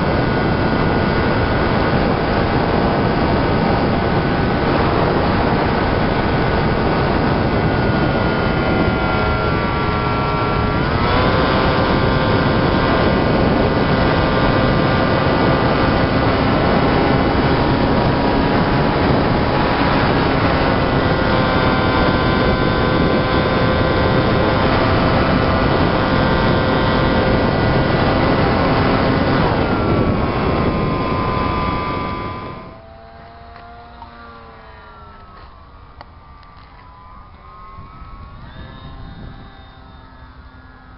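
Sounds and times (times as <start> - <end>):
model plane motor whining: 0.0 - 40.9
wind rush: 0.0 - 40.9.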